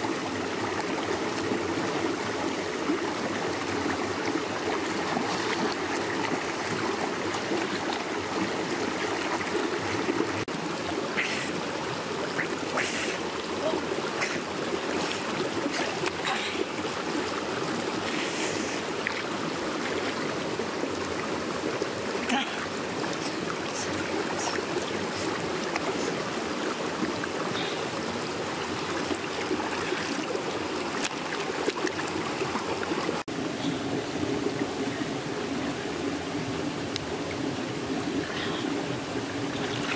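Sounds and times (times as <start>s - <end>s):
water splashes and drips: 0.0s - 34.9s, 36.8s - 39.9s
stream flowing over rocks: 0.0s - 39.9s.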